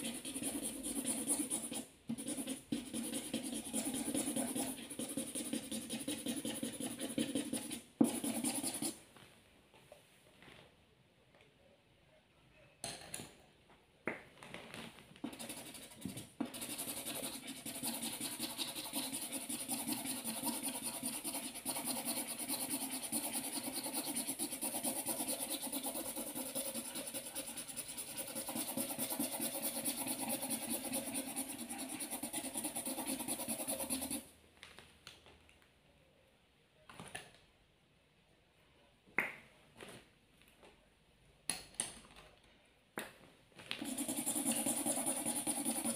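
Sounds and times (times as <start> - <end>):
felt-tip marker scribbling on paper: 0.0 - 9.0, 15.3 - 34.2, 43.8 - 45.9.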